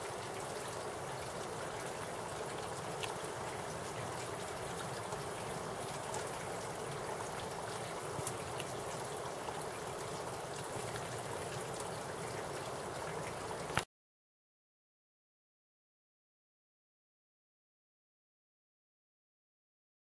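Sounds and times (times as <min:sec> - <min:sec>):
spring water flowing: 0:00.0 - 0:13.8.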